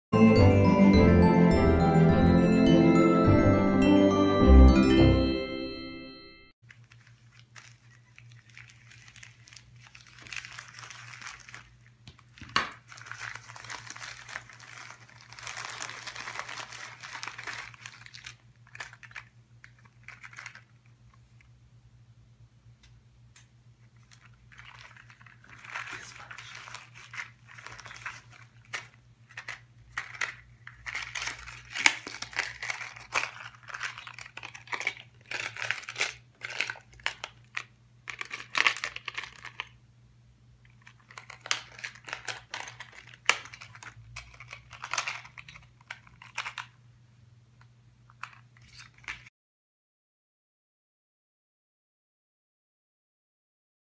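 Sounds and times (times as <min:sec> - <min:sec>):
plastic packaging crinkling: 0:06.6 - 0:21.5, 0:23.9 - 0:39.8, 0:40.7 - 0:46.8, 0:48.1 - 0:49.3
faint low hum: 0:06.7 - 0:49.2.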